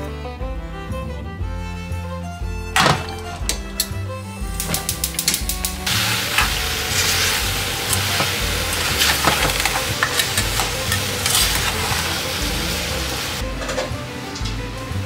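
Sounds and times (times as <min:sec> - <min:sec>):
gas burner hiss: 0:03.4 - 0:15.0
spoon scraping a saucepan: 0:06.3 - 0:12.5.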